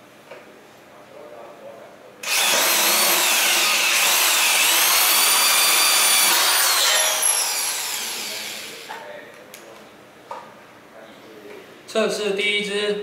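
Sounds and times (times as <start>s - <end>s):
electric drill whining: 2.2s - 8.9s.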